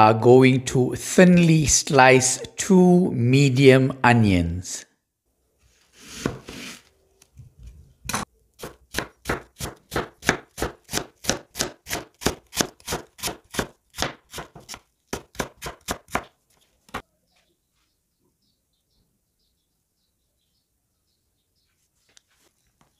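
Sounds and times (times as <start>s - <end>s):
knife chopping on cutting board: 8.1s - 16.3s.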